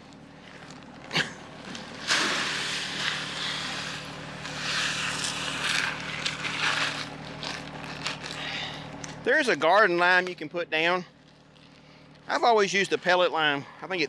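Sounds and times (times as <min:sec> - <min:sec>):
tractor engine idling: 0:00.0 - 0:10.4
pellets pouring into hopper: 0:01.7 - 0:07.8.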